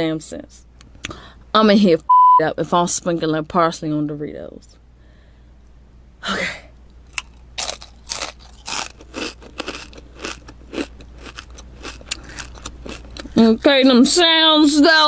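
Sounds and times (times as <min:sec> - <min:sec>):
chip crunching being chewed: 0:07.1 - 0:13.4.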